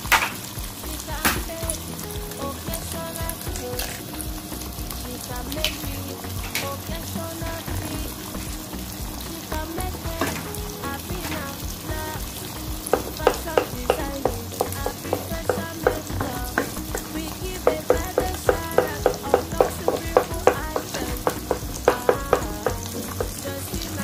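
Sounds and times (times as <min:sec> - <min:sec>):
food sizzling in frying pan: 0:00.0 - 0:24.0
wooden spoon tapping pan: 0:17.7 - 0:23.4.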